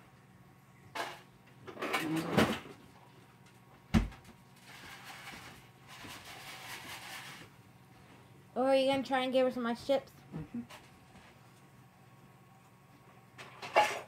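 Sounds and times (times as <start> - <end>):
rustling and clattering: 1.0 - 7.5.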